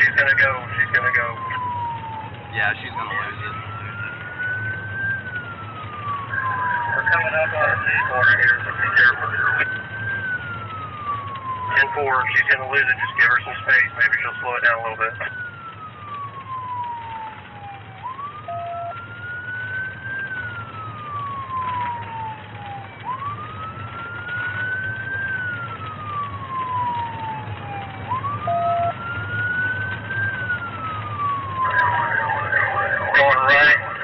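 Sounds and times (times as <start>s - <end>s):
engine and road rumble: 0.0s - 34.0s
police siren wailing: 0.0s - 34.0s
loud jumble of sound: 31.6s - 34.0s.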